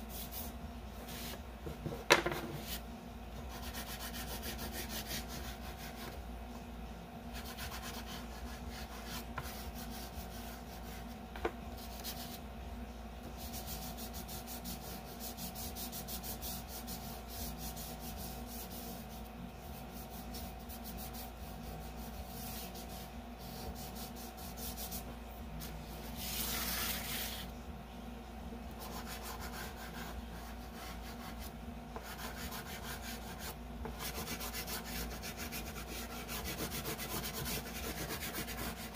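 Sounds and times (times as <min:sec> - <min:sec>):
chalk pastel scratching on paper: 0:00.0 - 0:01.4, 0:02.3 - 0:02.8, 0:03.5 - 0:06.2, 0:07.3 - 0:11.2, 0:11.8 - 0:12.4, 0:13.3 - 0:27.5, 0:28.7 - 0:38.9
steady low hum: 0:00.0 - 0:38.9.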